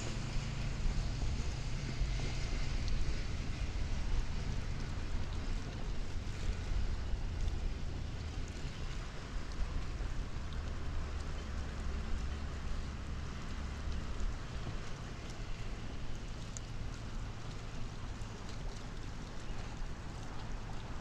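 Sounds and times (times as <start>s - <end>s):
low rumbling drone: 0.0s - 21.0s
wind noise on microphone: 0.0s - 21.0s
faint ticks: 7.4s - 21.0s.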